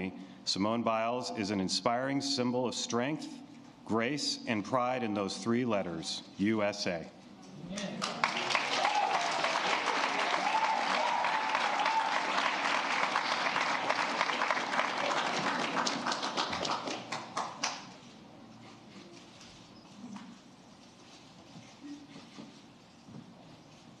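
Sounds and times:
audience applauding: 0:07.8 - 0:17.9.

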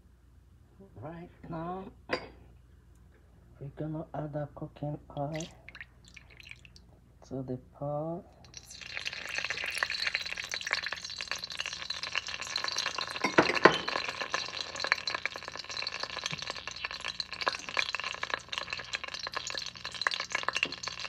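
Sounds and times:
oil sizzling in a pot: 0:05.3 - 0:06.8, 0:08.5 - 0:21.0
oil crackling and popping: 0:05.3 - 0:06.9, 0:08.4 - 0:21.0.

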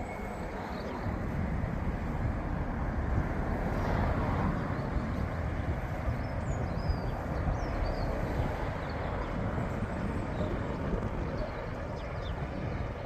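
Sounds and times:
birds chirping: 0:06.0 - 0:13.0.

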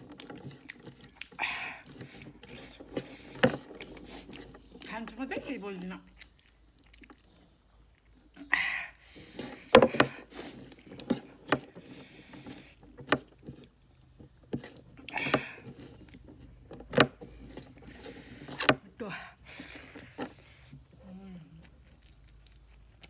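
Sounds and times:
breathy slurps: 0:00.0 - 0:04.8
wet chewing and lip smacks: 0:00.0 - 0:09.2, 0:20.2 - 0:23.0.

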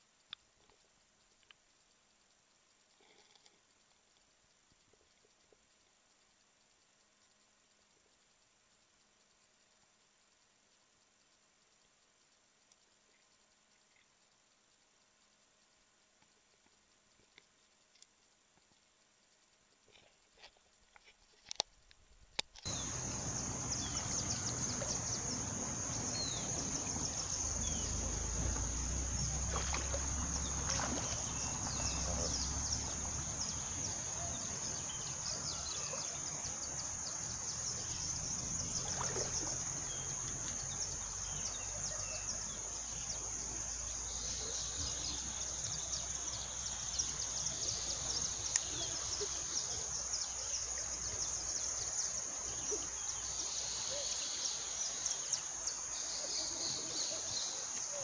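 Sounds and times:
river running: 0:19.8 - 0:58.0
high-pitched insect drone: 0:22.6 - 0:58.0
water splashes: 0:22.8 - 0:33.8, 0:37.8 - 0:40.9.

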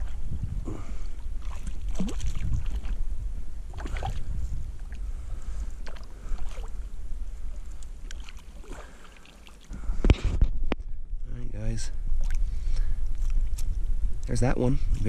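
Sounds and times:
low rumble: 0:00.0 - 0:08.1
water splashing: 0:01.4 - 0:03.0, 0:03.7 - 0:09.8.

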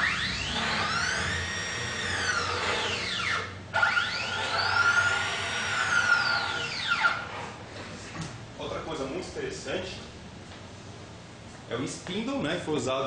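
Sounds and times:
stepper motors whining: 0:00.0 - 0:07.6.

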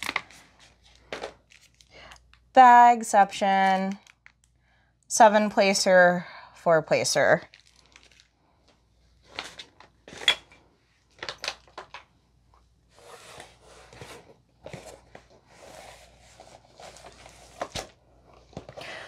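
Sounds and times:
cardboard box rustling and sliding: 0:13.0 - 0:17.7.

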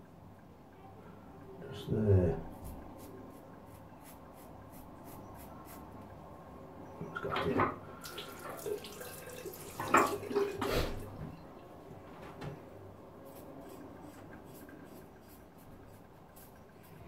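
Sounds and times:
tap running into a sink: 0:09.7 - 0:11.3.

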